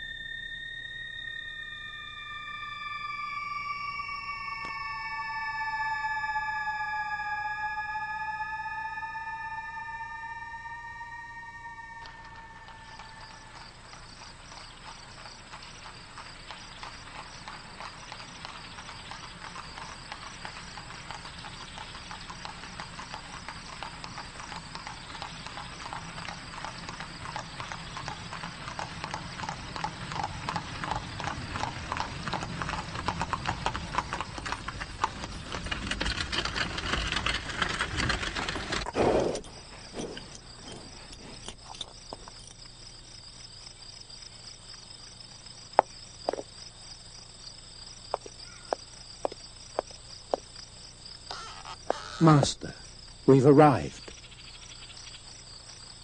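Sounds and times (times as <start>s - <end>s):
insect chirring: 0.0s - 56.0s
hooves clip-clopping on cobblestones: 12.6s - 42.8s, 48.0s - 50.8s
carriage rolling: 23.0s - 42.6s.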